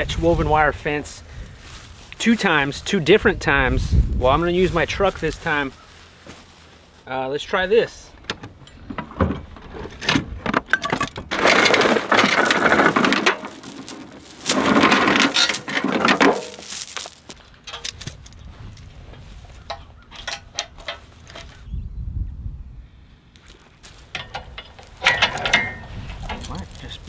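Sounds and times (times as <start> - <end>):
metal chain rattling: 10.7 - 18.4, 24.0 - 27.0
handled metal clicking: 17.6 - 18.4.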